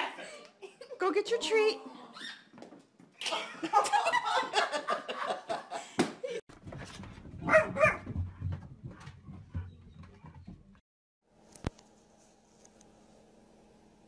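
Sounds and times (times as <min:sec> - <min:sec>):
people laughing: 0:03.3 - 0:06.4
dog feet on hardwood floor: 0:06.5 - 0:10.8
dog barking: 0:07.4 - 0:08.2.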